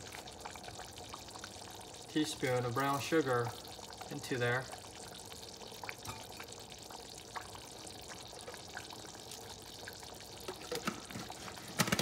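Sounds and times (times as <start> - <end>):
sauce bubbling at a boil: 0.0 - 12.0.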